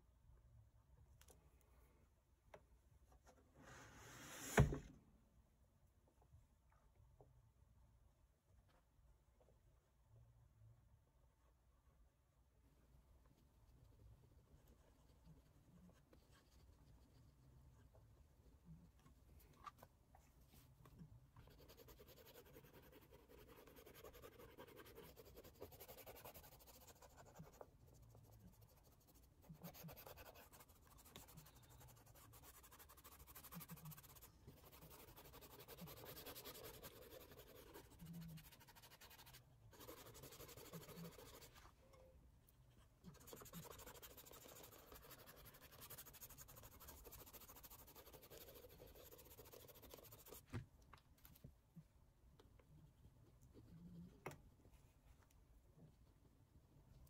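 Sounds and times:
cotton swab rubbing on paper: 21.4s - 41.6s, 43.1s - 50.5s.

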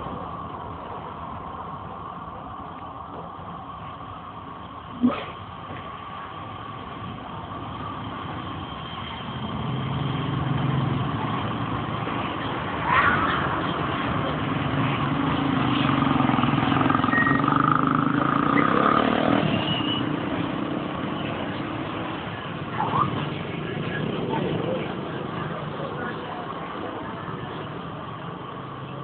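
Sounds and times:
motorcycle engines: 0.0s - 29.0s
street traffic: 0.0s - 29.0s.

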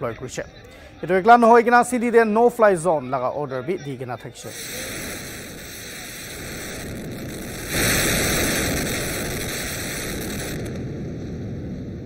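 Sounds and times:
wind: 0.0s - 12.0s
building demolition blast: 4.5s - 12.0s.

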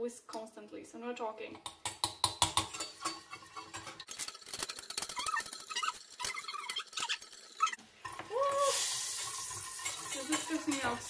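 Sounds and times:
whisk scraping metal saucepan: 2.1s - 8.2s, 8.8s - 11.0s.

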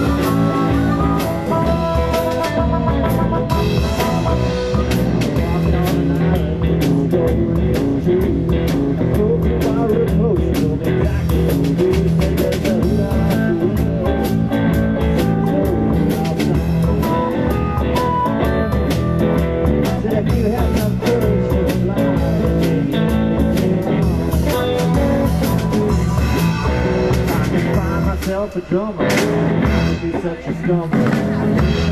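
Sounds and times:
harmonica: 0.0s - 5.3s
drum kit steady beat: 0.0s - 31.9s
electric guitar: 0.0s - 31.9s.

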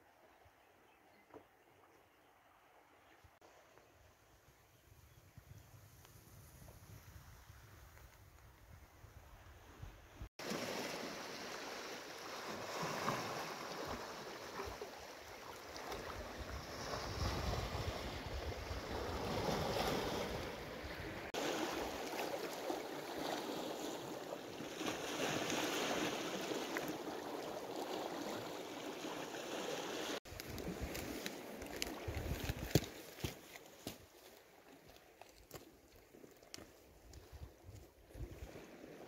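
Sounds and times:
small waves lapping over rocks: 10.4s - 33.7s.

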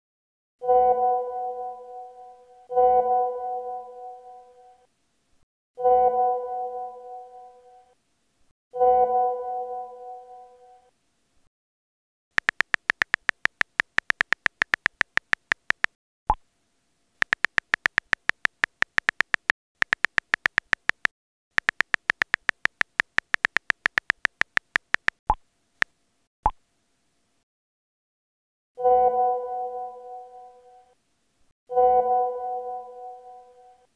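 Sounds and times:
phone keyboard key clicks: 12.4s - 15.9s, 17.2s - 25.2s
message sent pop: 12.4s - 16.4s.

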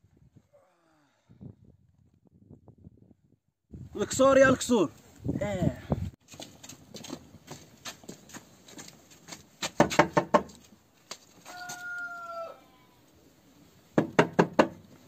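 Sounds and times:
rooster crow: 11.4s - 13.0s.

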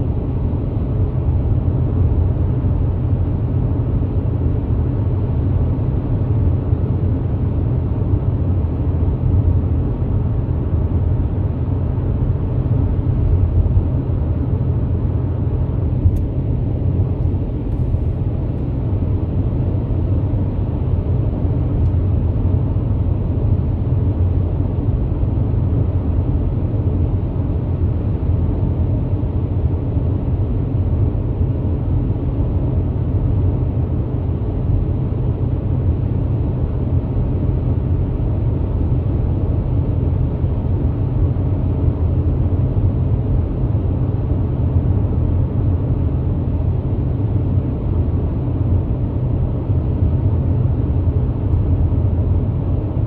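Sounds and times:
car road rumble from inside: 10.9s - 23.8s.

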